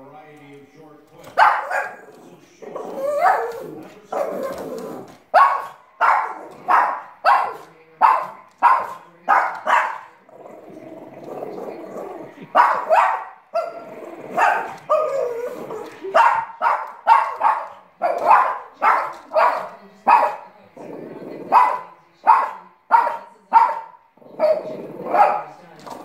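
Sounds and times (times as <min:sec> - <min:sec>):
small dog yapping: 0:02.8 - 0:10.1.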